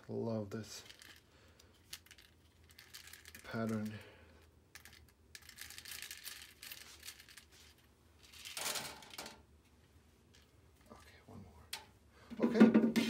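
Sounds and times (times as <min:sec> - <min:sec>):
plastic parts rattling in mesh basket: 0:00.7 - 0:04.0, 0:04.7 - 0:07.5, 0:08.2 - 0:09.4.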